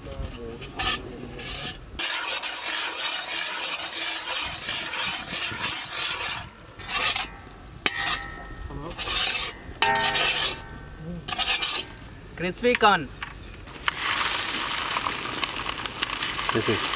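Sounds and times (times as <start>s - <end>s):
metal skimmer scraping a pan: 0.6s - 12.1s
sauce sizzling in a pan: 13.8s - 16.9s.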